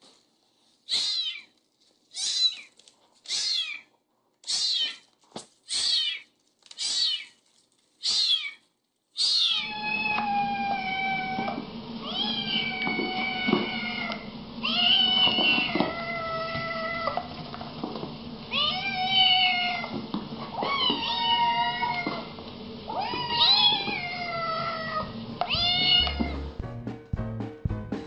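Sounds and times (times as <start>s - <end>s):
kitten meowing: 0.9s - 1.5s, 2.1s - 2.7s, 3.3s - 3.9s, 4.5s - 5.0s, 5.7s - 7.3s, 8.0s - 8.6s, 9.2s - 17.2s, 18.5s - 19.9s, 20.5s - 22.3s, 22.9s - 26.5s.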